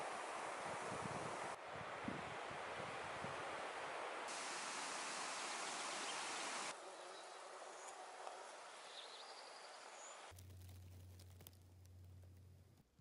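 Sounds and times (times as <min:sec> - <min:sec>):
wind hissing: 0:00.0 - 0:06.8.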